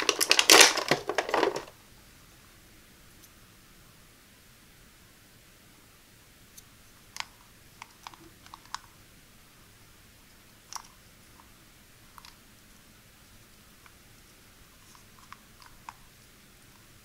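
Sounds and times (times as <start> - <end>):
plastic game pieces clicking: 0.0 - 1.7.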